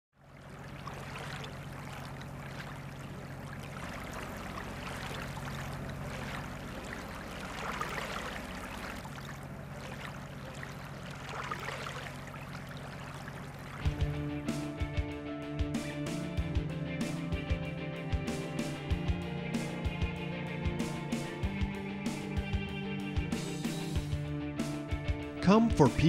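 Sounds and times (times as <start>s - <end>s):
waves lapping on sandy shore: 0.2s - 13.9s.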